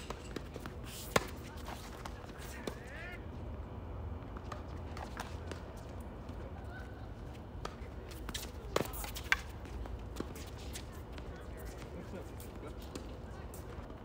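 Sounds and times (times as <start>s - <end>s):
tennis ball hits and bounces: 0.0s - 3.0s, 7.6s - 11.9s.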